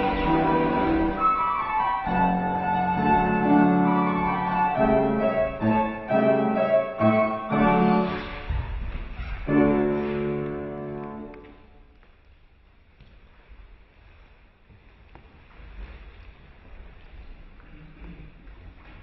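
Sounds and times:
piano chords: 0.0s - 11.9s.

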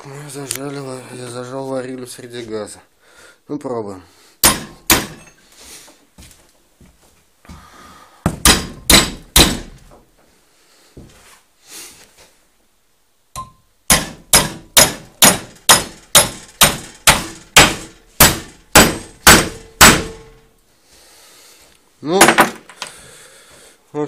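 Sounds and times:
sledgehammer striking steel bar: 4.4s - 5.4s, 8.4s - 9.8s, 13.4s - 20.4s.

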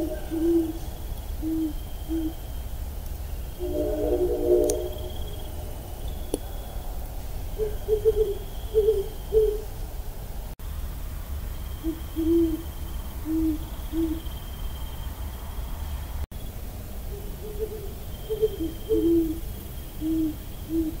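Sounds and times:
owl hooting: 0.0s - 2.6s, 7.5s - 9.7s, 11.8s - 14.4s, 17.1s - 21.0s.

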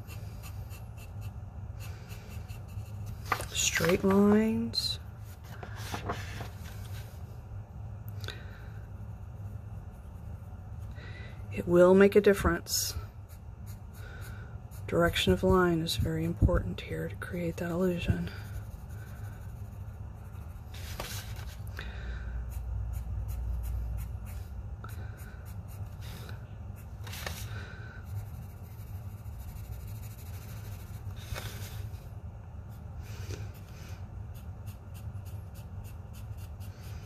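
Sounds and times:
pencil scratching on paper: 0.0s - 4.7s, 11.6s - 21.5s, 22.5s - 31.9s, 33.5s - 37.0s.

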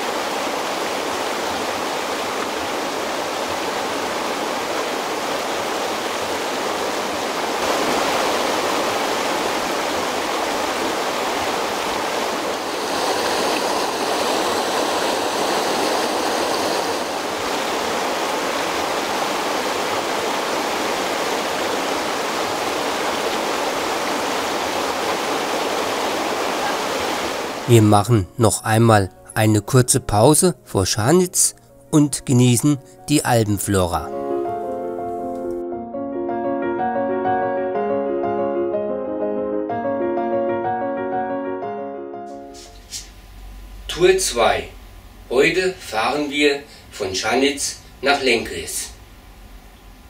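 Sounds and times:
river rushing over gravel: 0.0s - 28.0s.

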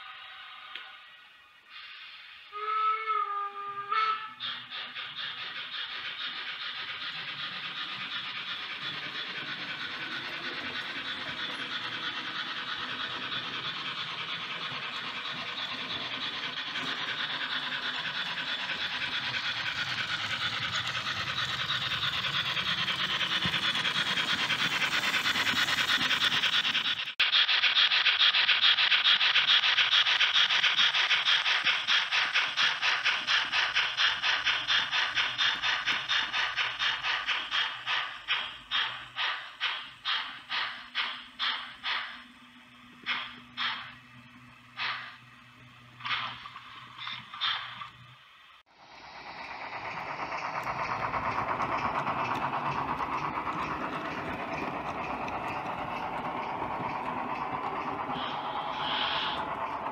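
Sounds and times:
model locomotive chuffing and rolling: 0.0s - 59.9s
model train whistle toot: 2.5s - 4.4s.

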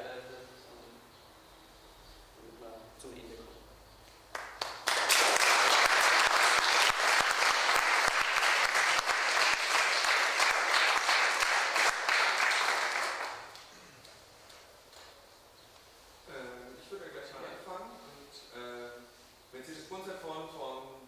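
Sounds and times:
audience applauding: 4.3s - 13.7s.

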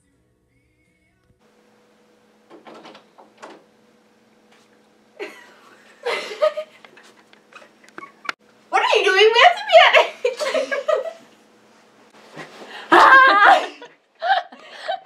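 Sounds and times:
door opening: 2.4s - 3.8s.

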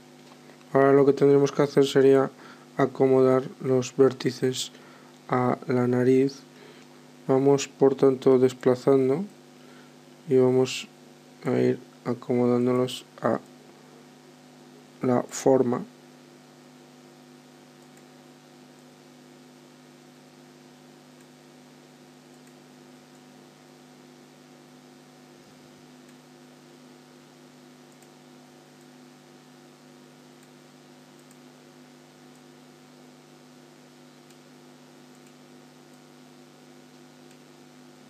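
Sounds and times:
recording hiss: 0.0s - 16.9s
electrical mains hum: 0.0s - 38.0s
faint clicks: 27.9s - 28.2s, 31.2s - 31.4s, 35.1s - 36.0s.

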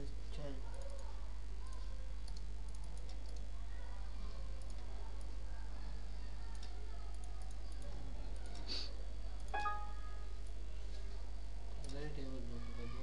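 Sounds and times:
faint computer mouse clicks: 1.7s - 3.5s
short pitched tone: 9.6s - 10.3s.

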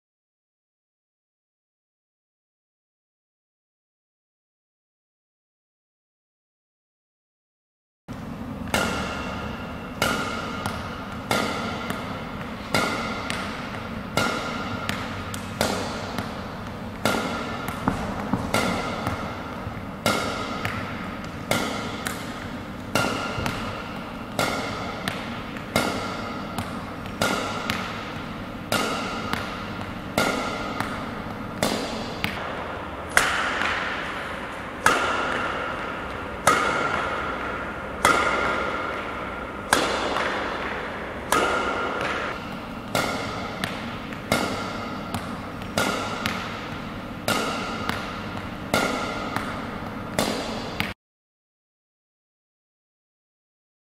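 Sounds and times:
racket striking shuttlecock: 8.1s - 51.0s.

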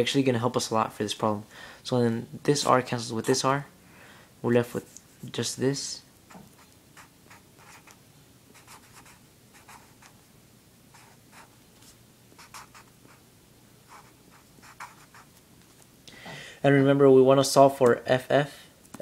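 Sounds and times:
felt-tip marker writing on paper: 6.4s - 10.2s, 10.9s - 13.2s, 13.9s - 15.3s.

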